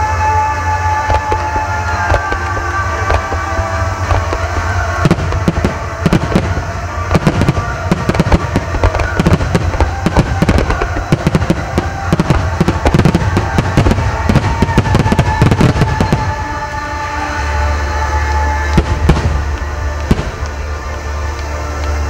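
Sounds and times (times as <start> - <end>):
firework crackle: 0.0 - 22.0
firework shells bursting: 1.0 - 16.6.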